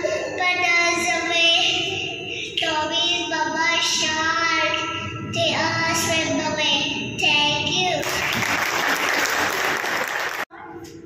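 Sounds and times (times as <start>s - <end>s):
audience applauding: 8.0s - 10.5s.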